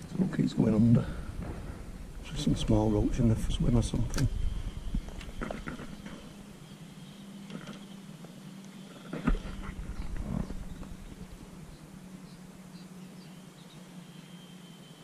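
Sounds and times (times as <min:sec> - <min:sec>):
steady low hum: 0:00.0 - 0:15.0
camera handling rubbing rumble: 0:04.9 - 0:06.3, 0:09.0 - 0:11.3.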